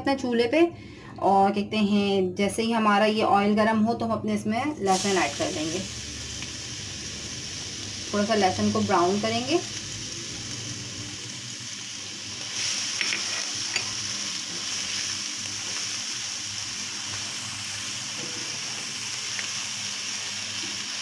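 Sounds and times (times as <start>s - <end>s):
garlic sizzling in oil: 4.8s - 21.0s
spatula scraping wok: 12.4s - 15.9s.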